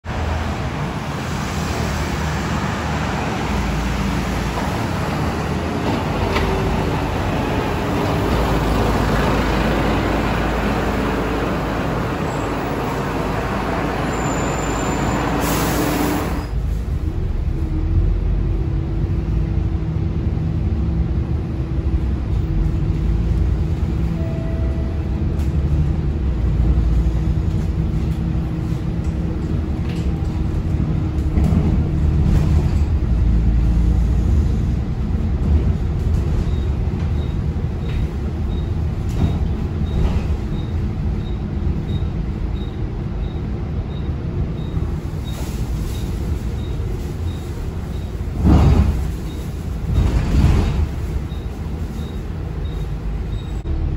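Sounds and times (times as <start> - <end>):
diesel bus engine running: 0.0 - 53.9
road rumble: 0.0 - 53.9
traffic noise: 0.0 - 53.9
bus air brake hiss: 14.2 - 16.6.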